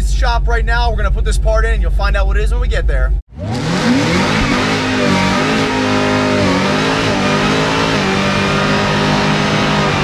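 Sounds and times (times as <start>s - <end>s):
car engine at high revs: 3.3s - 10.0s.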